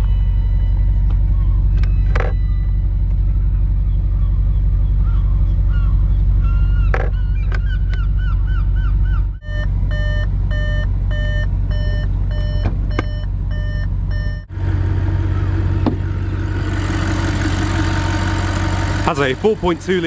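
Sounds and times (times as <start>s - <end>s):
car warning beeps: 0.0s - 3.1s, 9.4s - 14.5s
car engine idling: 0.0s - 20.0s.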